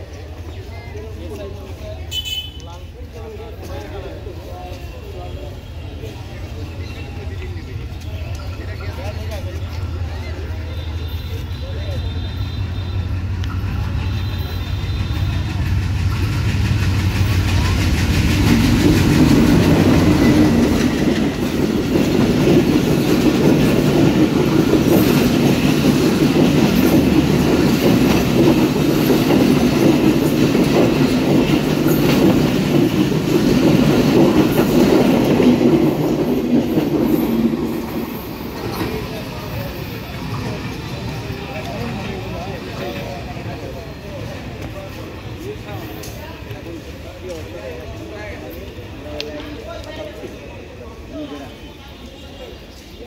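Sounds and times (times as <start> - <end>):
locomotive engine rumble: 6.2 - 49.6
train wheels clattering over rail joints: 14.9 - 42.3.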